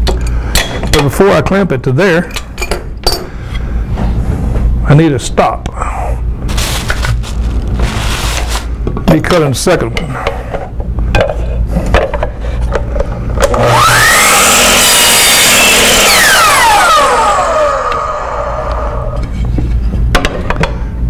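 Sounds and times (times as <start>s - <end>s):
miter saw motor whine: 13.4s - 19.2s
saw cutting wood: 13.5s - 19.1s
saw blade winding down: 13.5s - 19.2s.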